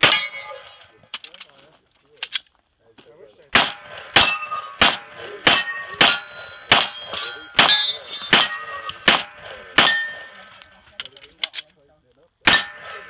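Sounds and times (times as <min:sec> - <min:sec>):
ringing metallic tone: 0:00.0 - 0:00.9, 0:04.2 - 0:10.6, 0:12.5 - 0:13.0
pistol shots: 0:03.5 - 0:10.8, 0:12.4 - 0:13.0.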